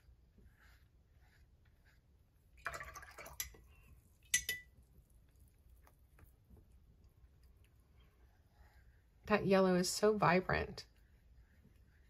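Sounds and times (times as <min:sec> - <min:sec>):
brush swish: 0:00.0 - 0:03.0
paintbrush dabbing: 0:00.0 - 0:12.0
brush clinking on container: 0:02.6 - 0:04.9.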